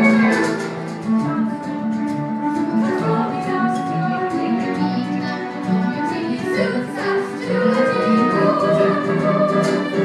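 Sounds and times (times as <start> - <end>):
instrumental accompaniment: 0.0 - 10.0
group singing show tune: 2.7 - 4.8, 5.9 - 10.0.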